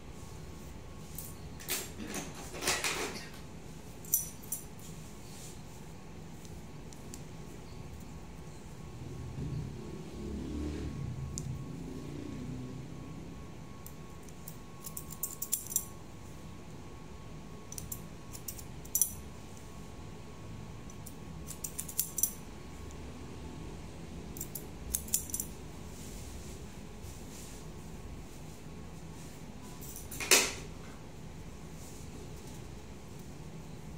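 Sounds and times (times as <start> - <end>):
scissors snipping hair: 21.0 - 22.4, 24.4 - 25.5.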